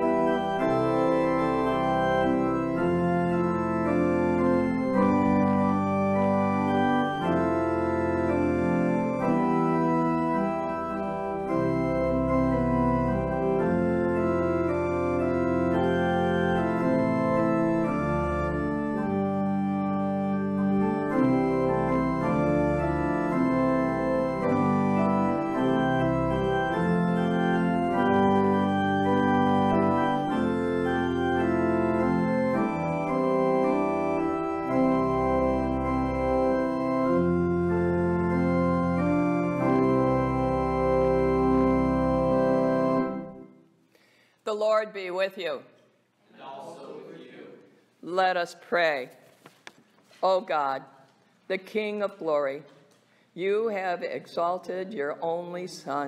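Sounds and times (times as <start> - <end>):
church organ chords: 0.0 - 44.3.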